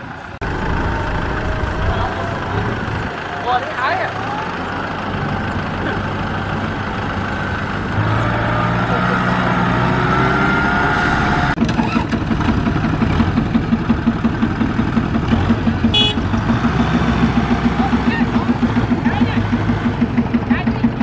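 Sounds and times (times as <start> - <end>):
tractor diesel engine under load: 0.0 - 21.0.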